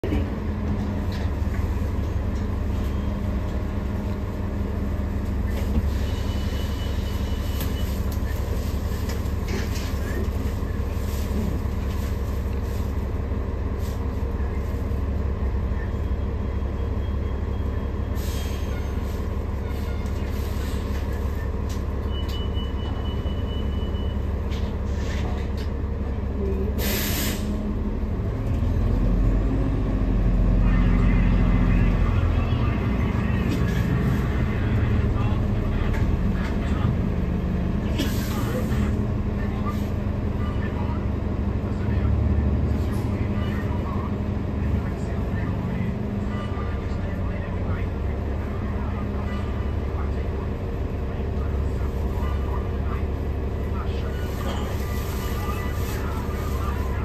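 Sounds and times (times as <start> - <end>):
bus engine low rumble: 0.0 - 57.0
compressed air hiss: 26.8 - 27.5.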